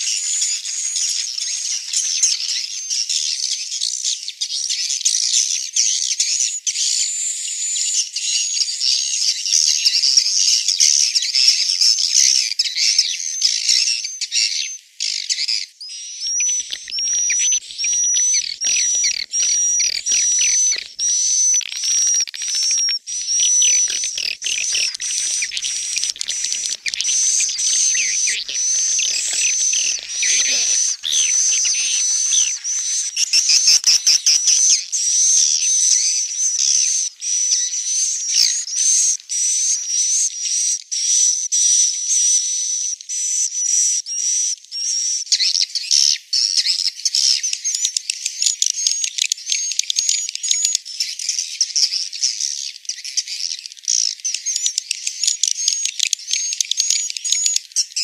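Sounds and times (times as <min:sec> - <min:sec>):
swiftlet chirps and twittering: 0:16.2 - 0:39.6.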